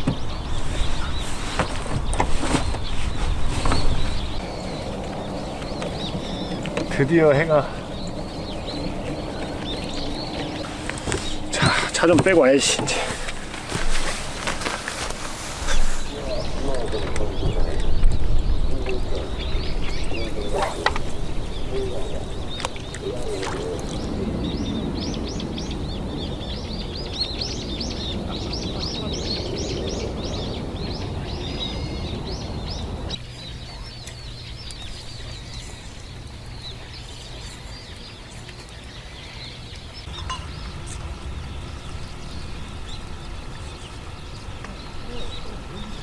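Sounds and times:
small birds chirping: 0.0 - 46.0
low rumble: 15.7 - 37.2, 39.9 - 46.0
faint steady hum: 29.4 - 46.0.

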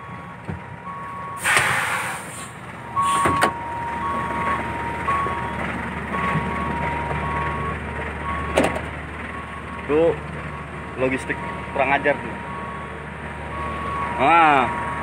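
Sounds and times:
truck engine running: 0.0 - 15.0
loud hiss: 1.4 - 3.2
backup alarm beeping: 2.8 - 8.7, 13.5 - 15.0.

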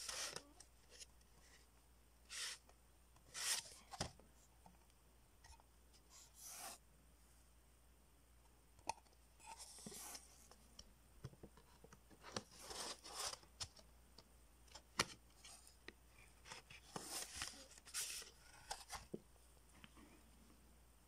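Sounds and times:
cardboard sliding and rustling: 3.3 - 4.1, 16.4 - 19.2.

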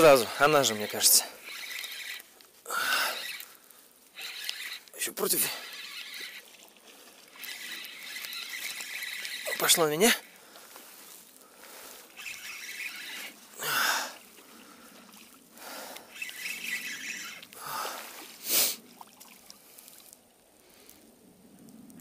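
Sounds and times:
water splashing: 0.5 - 11.0, 11.7 - 20.3
man breathing out heavily: 2.6 - 3.8, 11.4 - 12.1, 13.6 - 15.0, 15.6 - 16.1, 17.6 - 18.8.

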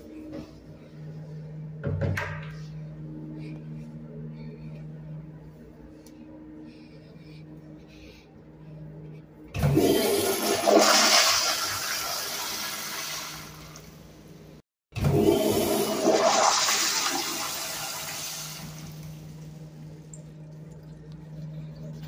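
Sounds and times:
toilet flushing: 9.6 - 14.2, 15.0 - 20.9.

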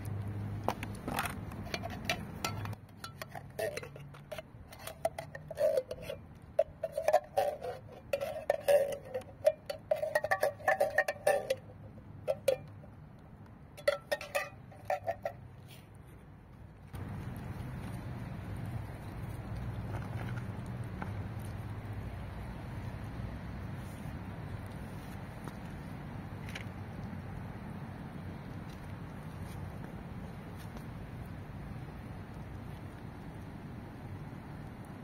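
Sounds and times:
spoon clinking on tin can: 13.8 - 15.3.

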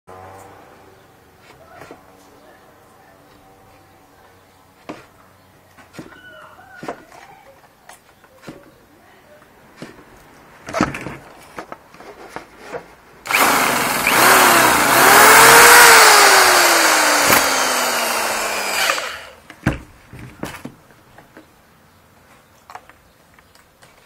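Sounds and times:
model engine whirring: 13.3 - 19.4.

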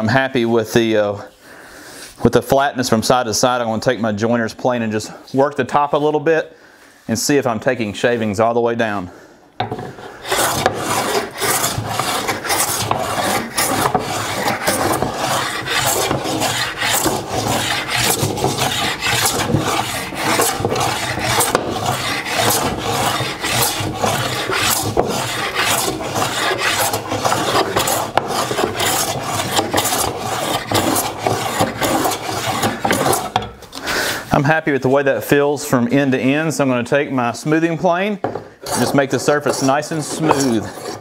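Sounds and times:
hand plane rasping along board: 9.6 - 33.5, 38.3 - 41.0.

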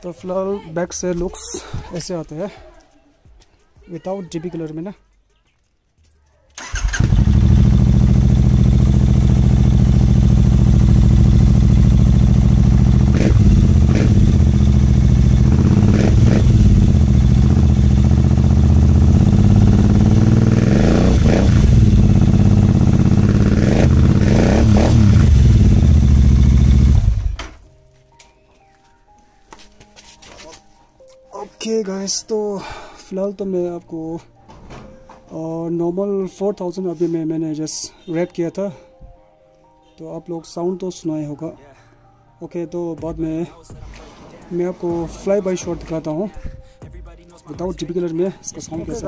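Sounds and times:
motorcycle engine idling and revving: 6.6 - 27.6.

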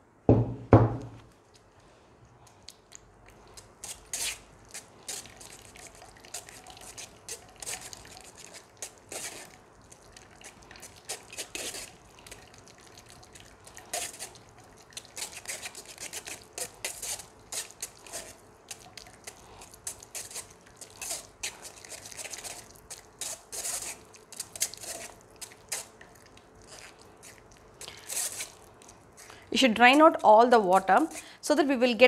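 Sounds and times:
liquid dripping into bowl: 9.5 - 15.2
spoon scraping metal strainer: 19.9 - 22.6, 23.2 - 25.9, 27.8 - 28.6.

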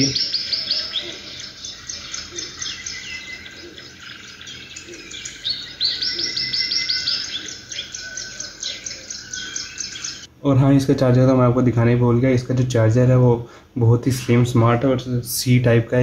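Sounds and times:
birdsong through laptop speakers: 0.0 - 10.3.

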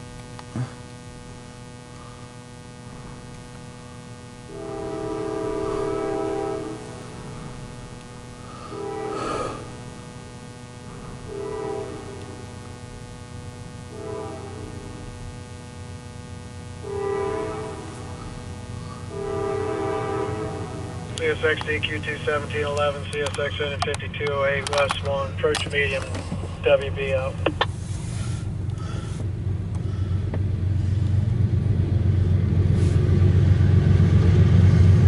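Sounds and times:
steady low hum: 0.0 - 35.0
locomotive air horn blasts: 4.4 - 7.7, 8.4 - 9.9, 10.8 - 12.5, 13.9 - 15.2, 16.7 - 21.4.

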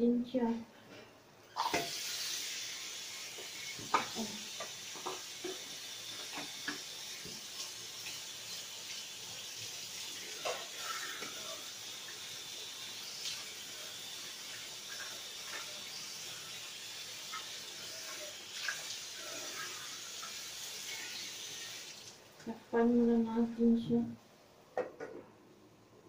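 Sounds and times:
food simmering in a pan: 1.5 - 22.3.

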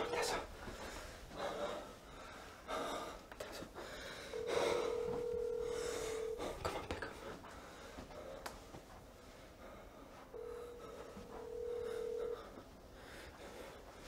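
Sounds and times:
breathing: 0.6 - 6.6, 7.2 - 8.5, 9.2 - 14.0
telephone ringback tone: 4.4 - 6.4, 10.4 - 12.5.

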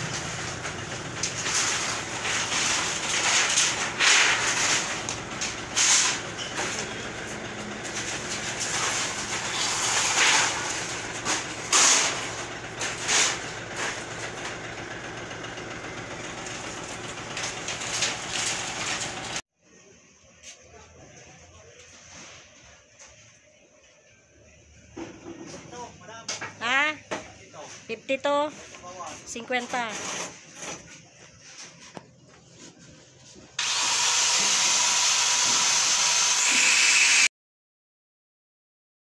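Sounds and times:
metal sheets crashing: 0.0 - 7.0, 7.8 - 14.5, 16.5 - 19.4
sheet metal clattering and scraping: 0.0 - 7.1.

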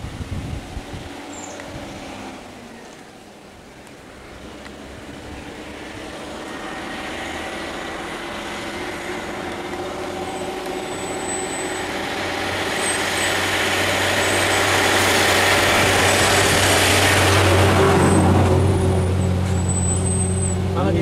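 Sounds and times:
diesel truck engine approaching: 0.0 - 21.0
thin high squeals: 10.1 - 15.2, 18.0 - 20.7.

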